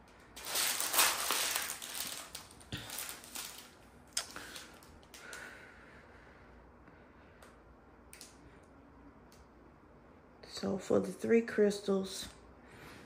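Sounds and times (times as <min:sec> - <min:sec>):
plastic film crinkling: 0:00.0 - 0:05.3.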